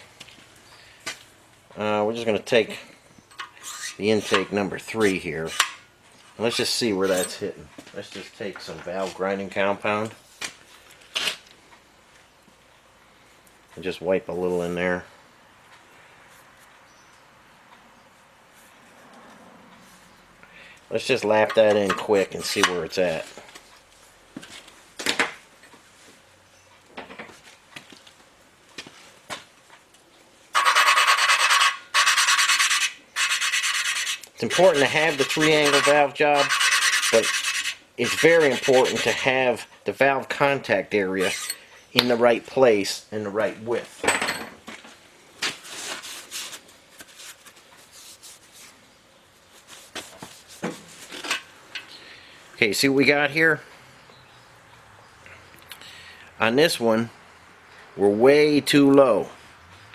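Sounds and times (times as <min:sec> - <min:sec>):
cloth rag scrubbing metal: 0:30.6 - 0:39.4
valve lapping gritty rasp: 0:30.6 - 0:39.7.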